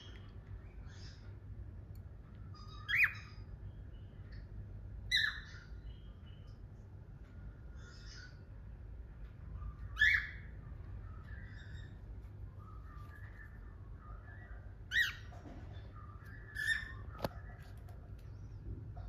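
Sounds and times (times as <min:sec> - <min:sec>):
cockatiel chattering and warbling: 0:02.5 - 0:03.5, 0:05.1 - 0:05.9, 0:16.2 - 0:18.1
loud sharp bird chirps: 0:02.6 - 0:03.5, 0:09.8 - 0:10.6.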